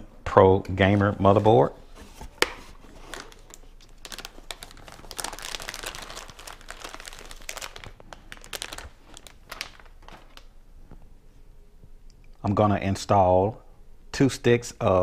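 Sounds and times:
plastic bag crinkling: 2.7s - 10.6s.

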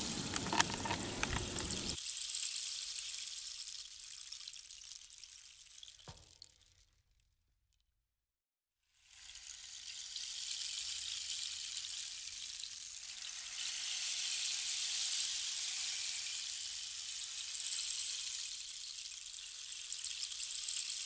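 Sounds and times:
high-pitched hiss: 0.0s - 3.7s, 13.1s - 21.0s.

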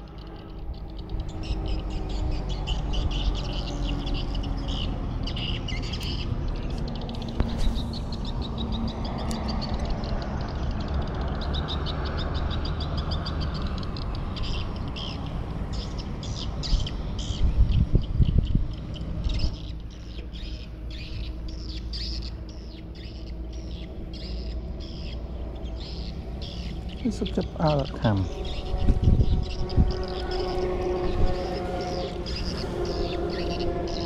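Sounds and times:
birds chirping: 0.0s - 34.0s
steady low rumble: 13.4s - 34.0s.

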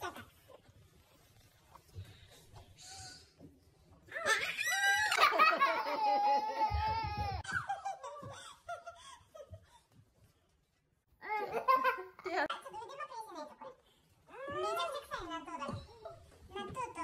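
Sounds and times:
child laughing and squealing: 4.2s - 7.6s.

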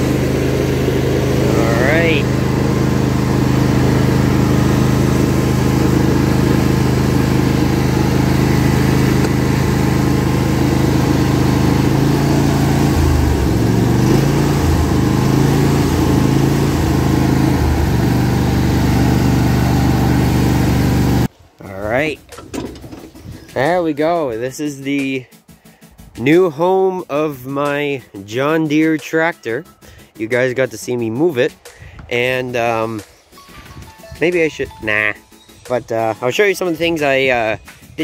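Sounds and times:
lawn tractor engine running: 0.0s - 21.3s, 21.9s - 23.8s.

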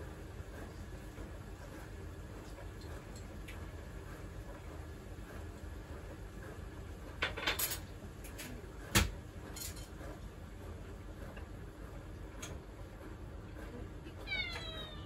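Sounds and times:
cat meowing: 14.2s - 15.0s.

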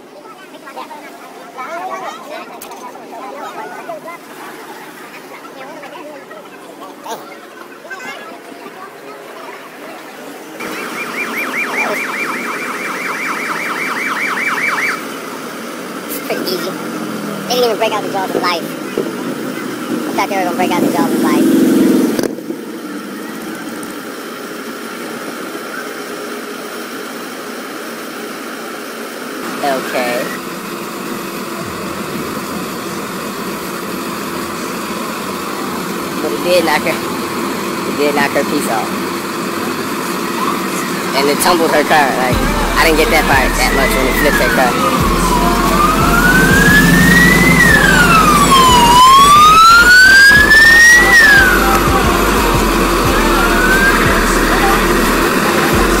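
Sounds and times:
fire engine idling: 8.4s - 21.4s, 22.4s - 56.0s
emergency siren wailing: 10.6s - 16.0s, 29.4s - 56.0s.

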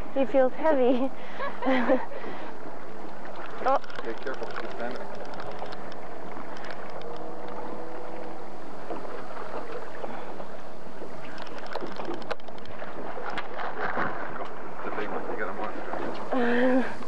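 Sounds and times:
boat engine running: 0.0s - 17.0s
sea noise: 0.0s - 17.0s
wind noise: 1.0s - 17.0s
sharp clicks: 3.7s - 7.6s, 11.3s - 13.5s.

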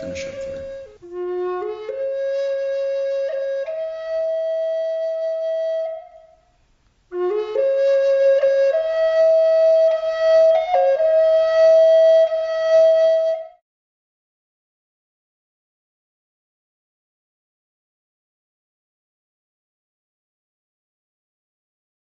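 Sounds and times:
flute playing: 0.0s - 6.4s, 7.1s - 13.6s.

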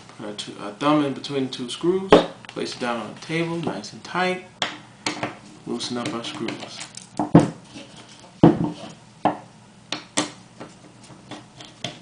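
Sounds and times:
tool knocking on table: 7.2s - 7.6s, 8.4s - 9.4s.

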